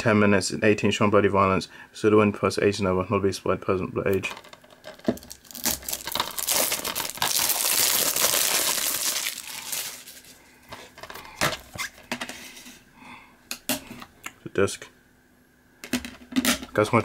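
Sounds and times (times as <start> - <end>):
plastic wrapping crinkling: 4.2 - 12.0.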